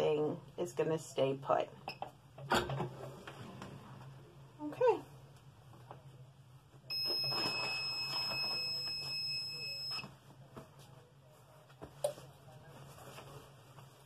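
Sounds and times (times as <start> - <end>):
sheet rustling: 10.5 - 14.0.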